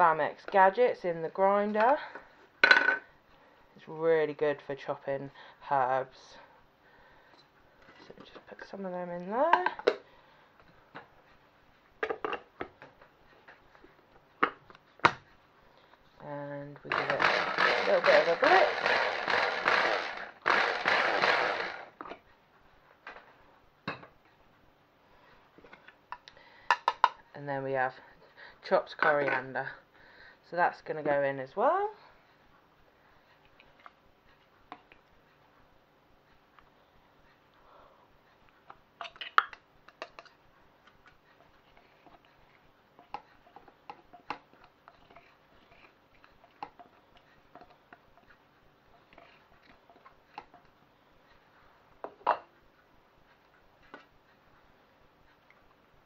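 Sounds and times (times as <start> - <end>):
hand blender motor whirring: 16.9 - 22.0.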